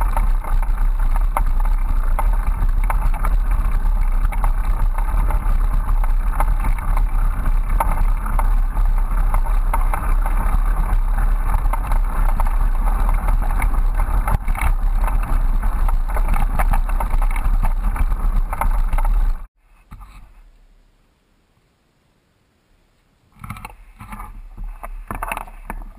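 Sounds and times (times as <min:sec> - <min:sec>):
bike rattling clicks: 0:00.0 - 0:19.5
wind buffeting microphone: 0:00.0 - 0:19.5
bicycle rolling on dirt trail: 0:00.0 - 0:20.3, 0:23.3 - 0:25.9.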